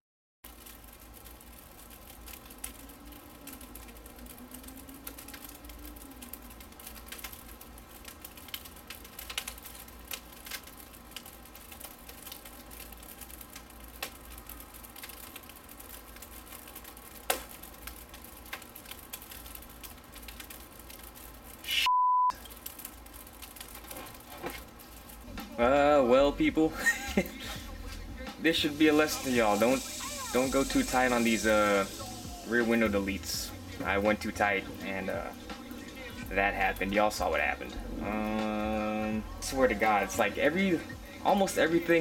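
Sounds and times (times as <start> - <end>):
faint clicks: 0.5 - 21.6
censor bleep: 21.8 - 22.4.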